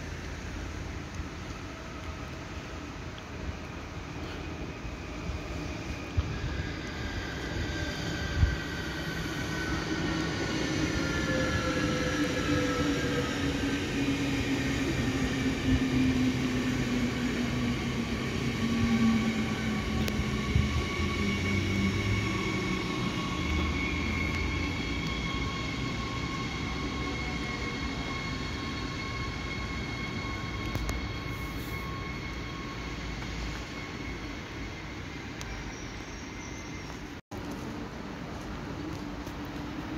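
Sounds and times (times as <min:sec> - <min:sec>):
wheels rumbling on rail: 0:00.0 - 0:39.9
electric train motor whine: 0:04.7 - 0:36.0.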